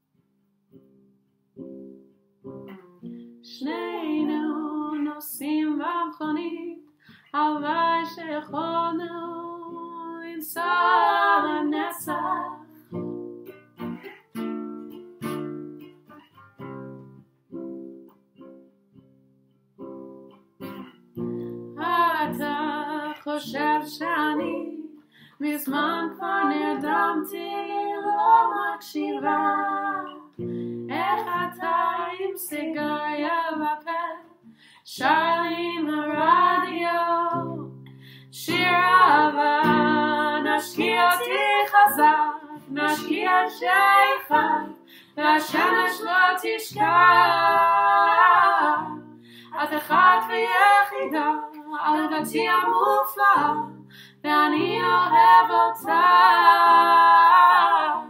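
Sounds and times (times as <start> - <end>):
woman singing: 3.4 - 12.9, 21.8 - 58.0
acoustic guitar strumming: 10.8 - 22.6, 29.1 - 31.7.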